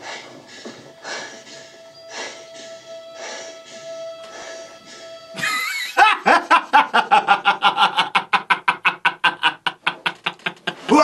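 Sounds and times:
quiet music: 0:00.0 - 0:08.2
man laughing rapidly: 0:05.4 - 0:11.0.

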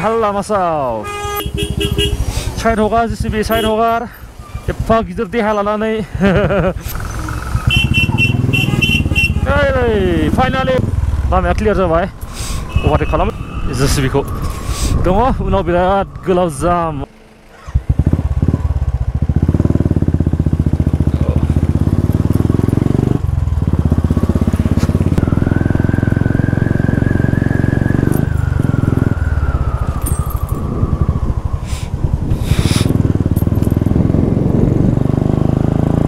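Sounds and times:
motorcycle engine running: 0:01.2 - 0:04.1, 0:06.3 - 0:12.8, 0:17.1 - 0:36.0.

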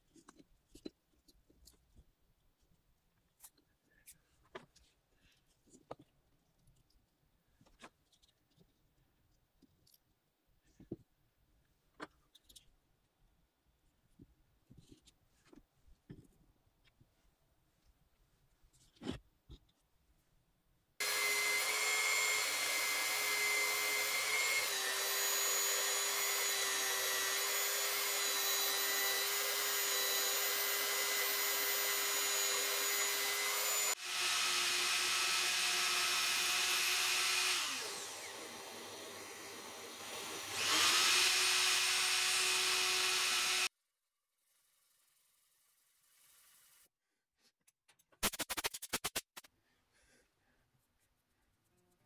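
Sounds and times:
belt sander running: 0:21.0 - 0:43.7.

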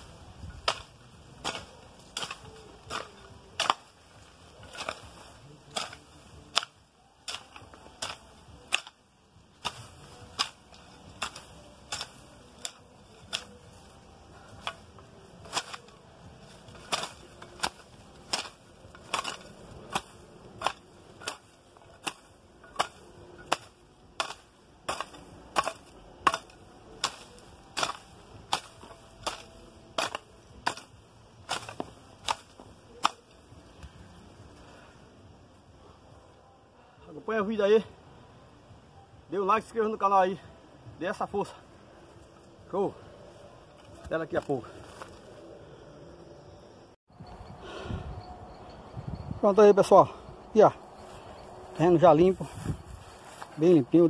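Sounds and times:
hoe chopping into soil: 0:00.0 - 0:34.0.

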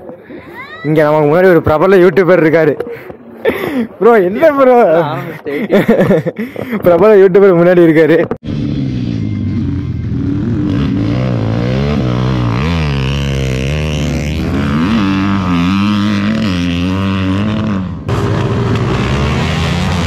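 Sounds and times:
dirt bike engines revving: 0:08.4 - 0:20.0.

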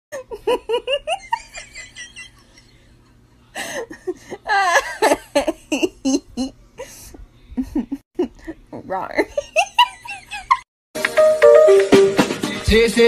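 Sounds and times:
person laughing: 0:00.1 - 0:02.7, 0:03.6 - 0:07.0, 0:07.6 - 0:08.6.

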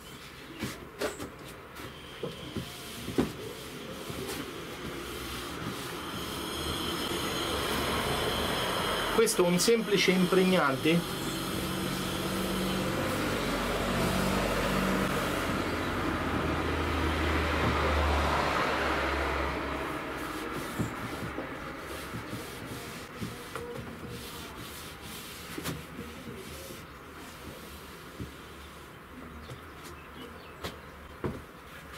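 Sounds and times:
vehicle passing by: 0:04.0 - 0:23.1.

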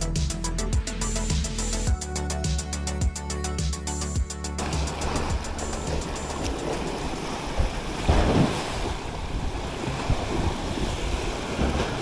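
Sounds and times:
sea waves splashing on pier: 0:04.6 - 0:12.0
wind rumbling on microphone: 0:05.0 - 0:12.0.

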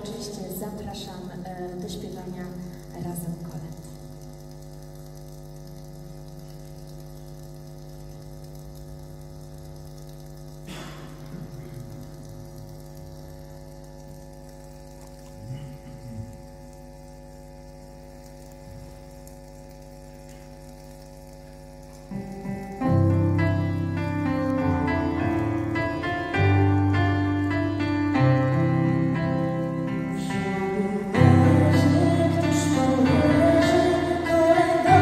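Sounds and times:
electrical hum: 0:00.0 - 0:35.0
keyboard playing: 0:22.1 - 0:35.0.

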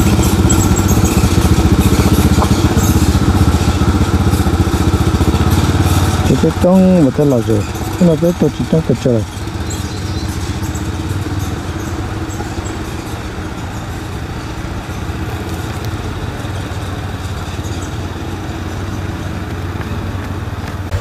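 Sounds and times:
quad engine droning: 0:00.0 - 0:21.0.

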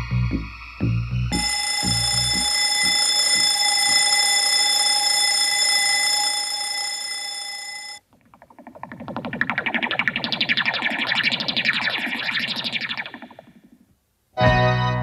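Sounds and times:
low pulsing beats: 0:00.0 - 0:04.0
high ringing tone: 0:01.3 - 0:08.0.

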